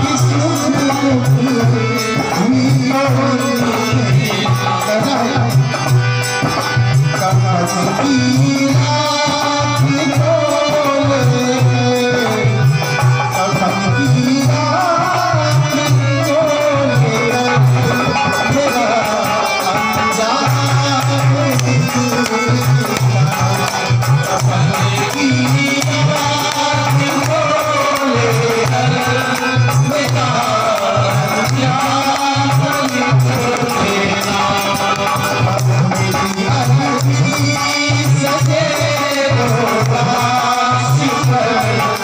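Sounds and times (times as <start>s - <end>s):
hand percussion beat: 0.0s - 42.0s
harmonium: 0.0s - 42.0s
man singing: 0.0s - 42.0s.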